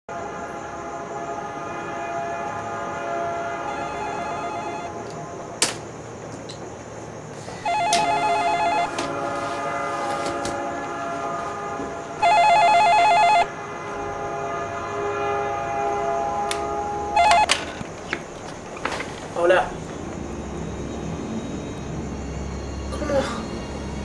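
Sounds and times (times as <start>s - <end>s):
drone of held tones: 2.8s - 5.1s, 7.5s - 9.8s, 10.4s - 17.6s, 20.0s - 24.0s
telephone ringing: 3.7s - 4.9s, 7.6s - 9.1s, 12.2s - 13.5s, 17.2s - 17.6s.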